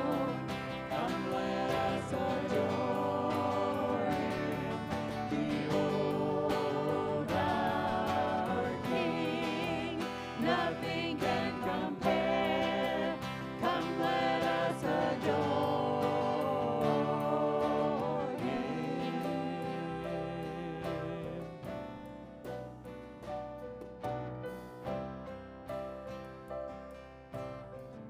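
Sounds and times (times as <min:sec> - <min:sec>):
voices singing: 0:00.0 - 0:22.0
guitars: 0:00.0 - 0:28.0
piano: 0:00.0 - 0:28.0.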